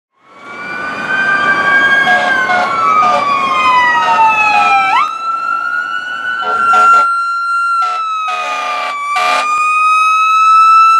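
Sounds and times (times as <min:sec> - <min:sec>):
emergency sirens wailing: 0:00.2 - 0:10.9
short horn blasts: 0:02.1 - 0:03.2, 0:06.4 - 0:07.1, 0:07.8 - 0:09.5.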